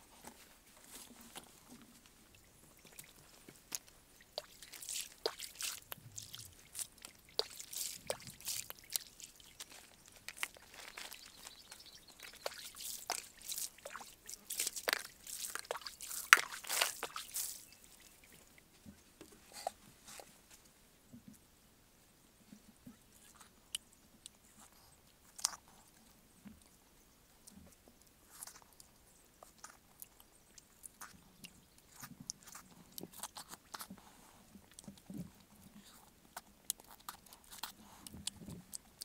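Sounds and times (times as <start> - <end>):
water dripping: 1.7 - 18.8
basket handling taps and crunches: 2.8 - 20.4
footsteps: 4.4 - 18.3.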